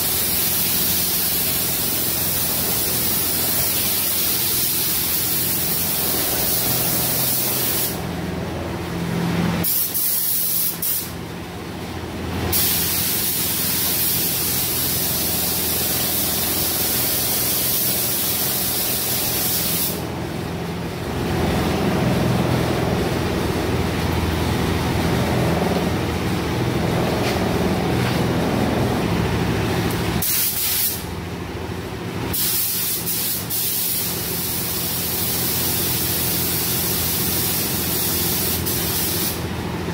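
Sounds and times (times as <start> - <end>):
paint spray gun hissing: 0.0 - 8.0, 9.6 - 11.1, 12.5 - 20.0, 30.2 - 31.1, 32.3 - 39.4.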